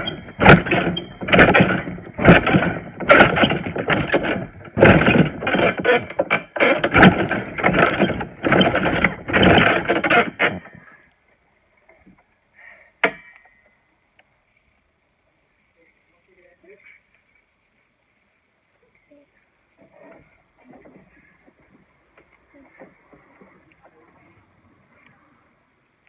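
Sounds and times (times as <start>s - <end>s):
trampoline springs bouncing: 0.0s - 11.0s, 13.0s - 13.8s.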